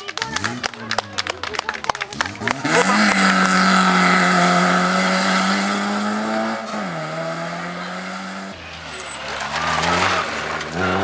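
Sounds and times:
rally car engine at high revs: 2.1s - 8.6s, 9.3s - 11.0s.

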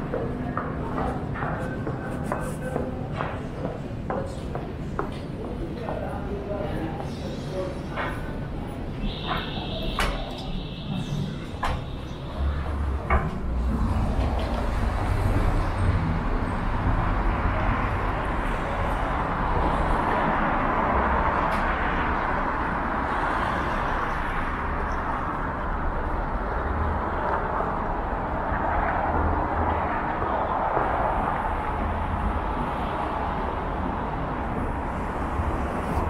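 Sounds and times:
cars driving past: 8.0s - 36.0s.

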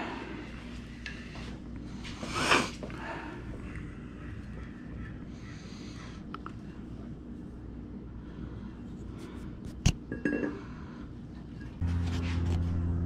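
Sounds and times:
steady low hum: 0.0s - 13.0s
metallic ring: 10.1s - 10.6s.

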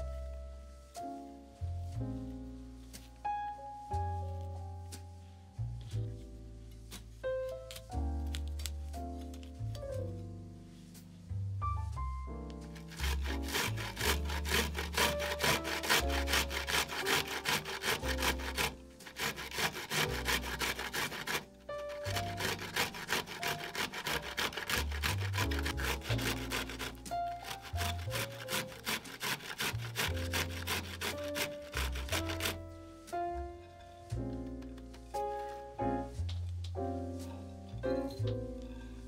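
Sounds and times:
broccoli rasping on a grater: 12.7s - 32.6s.

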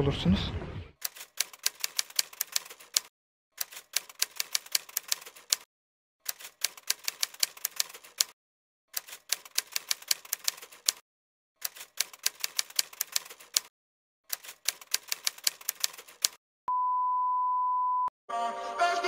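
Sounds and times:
typewriter keys clacking: 1.0s - 5.6s, 6.3s - 8.3s, 9.0s - 11.0s, 11.6s - 13.7s, 14.3s - 16.4s.

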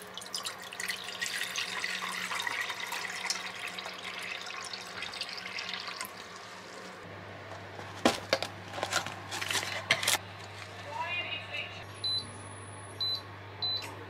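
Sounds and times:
water pouring into saucepan: 0.0s - 7.0s.

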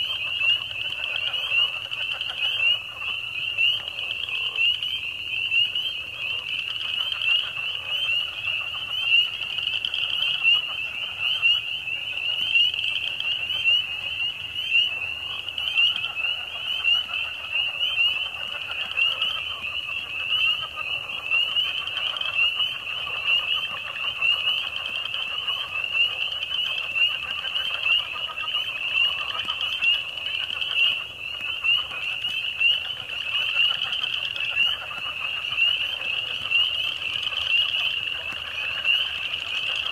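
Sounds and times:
high-pitched frog calls: 0.0s - 39.9s
lower frog calls: 0.0s - 39.9s.

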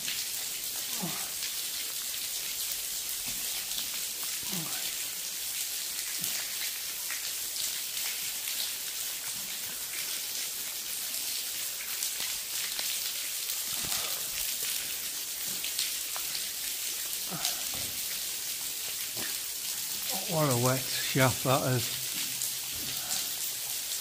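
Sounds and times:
water drops falling: 13.6s - 23.9s.

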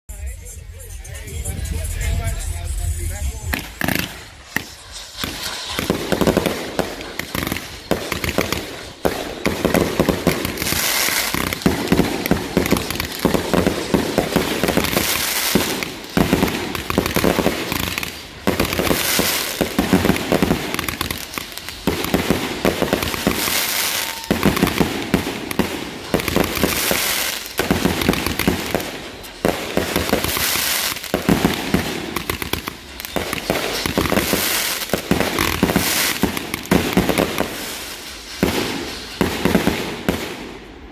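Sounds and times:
fireworks crackling: 0.1s - 40.9s
aerial fireworks bursting: 1.1s - 40.9s
firework spark fountain: 2.0s - 40.9s.

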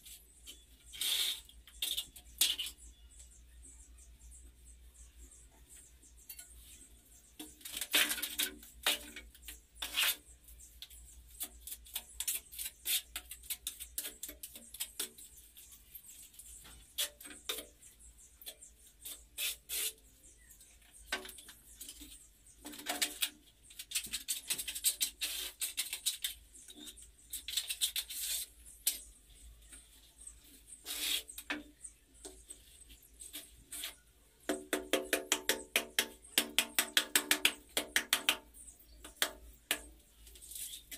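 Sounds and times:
ceramic tiles scraping and clicking: 7.4s - 17.9s.

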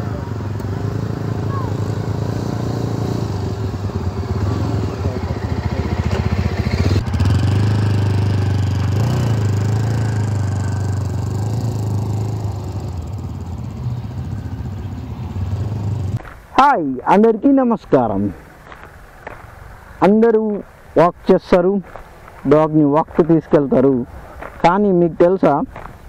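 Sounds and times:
motorcycle engine running: 0.0s - 16.2s
tyres crunching on gravel: 16.2s - 26.0s.

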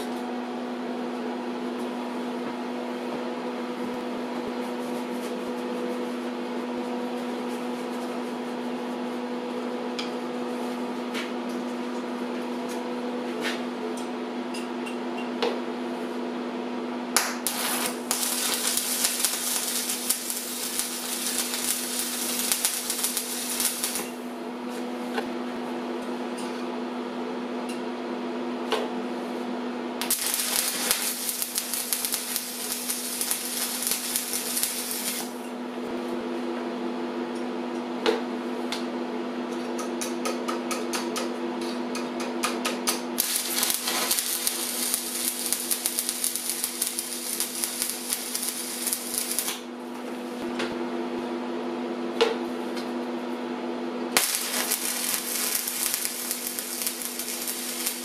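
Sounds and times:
welding arc crackling and hissing: 17.2s - 24.2s, 30.0s - 35.4s, 43.2s - 49.7s, 54.2s - 58.0s
welding machine hum: 17.2s - 24.7s, 30.0s - 35.9s, 43.0s - 50.5s, 54.1s - 58.0s.

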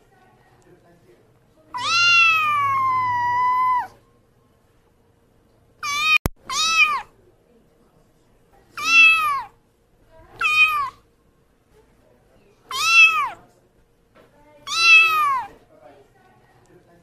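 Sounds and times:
kitten meowing: 1.8s - 4.0s, 5.8s - 7.1s, 8.8s - 9.5s, 10.4s - 11.0s, 12.7s - 13.4s, 14.7s - 15.6s.

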